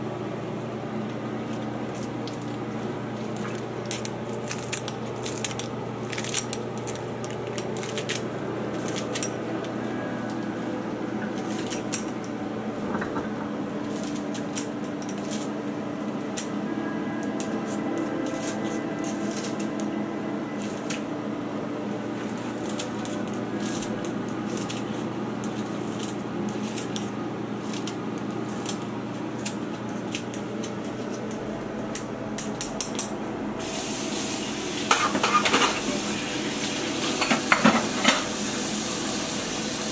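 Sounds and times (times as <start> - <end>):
steady low hum: 0.0 - 37.8
scissors snipping herbs: 3.2 - 9.4, 17.2 - 19.9, 20.6 - 21.0, 22.2 - 33.1.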